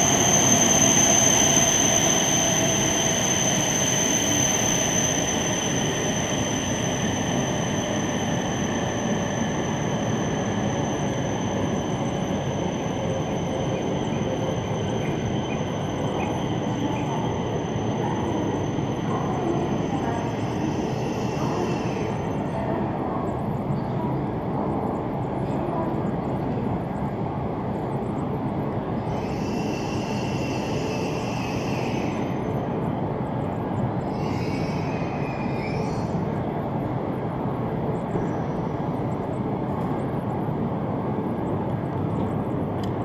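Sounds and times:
thin high whine: 0.0 - 22.2
train mechanical roar: 0.0 - 43.0.

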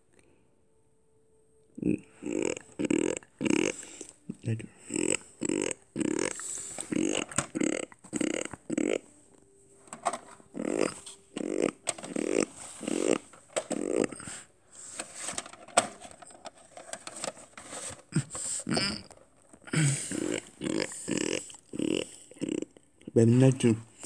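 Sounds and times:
low vocal sounds: 1.7 - 9.1
plastic case clicking: 6.8 - 7.6, 9.8 - 12.3, 12.9 - 14.0, 15.0 - 18.0.

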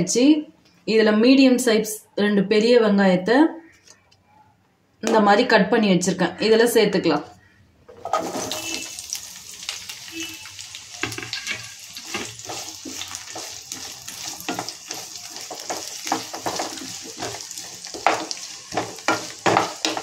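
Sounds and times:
wooden spatula scraping pan: 7.9 - 8.9, 11.0 - 20.0
onions sizzling in hot oil: 8.1 - 20.0.

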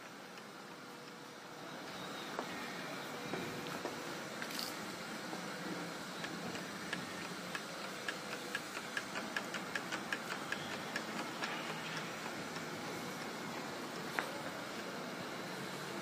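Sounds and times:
whirligig clicking: 5.9 - 15.0.

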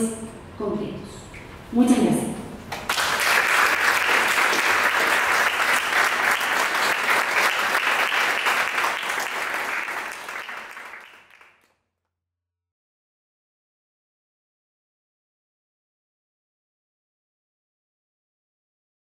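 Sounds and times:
audience applauding: 2.8 - 11.7.

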